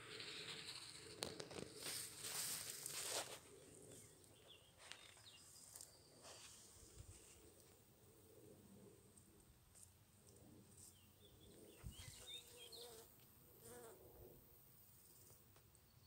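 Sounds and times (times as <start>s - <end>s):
rustling: 0.0s - 4.0s.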